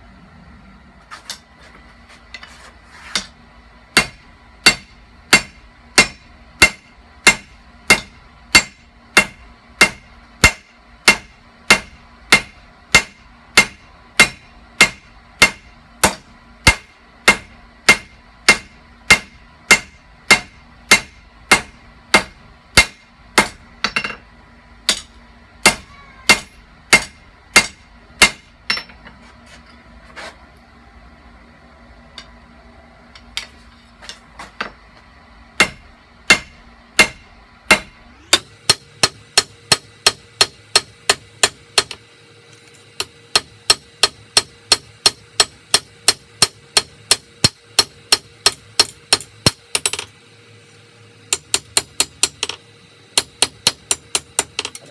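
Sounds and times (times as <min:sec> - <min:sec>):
hammer ringing on anvil: 0:04.0 - 0:24.2, 0:24.9 - 0:29.1.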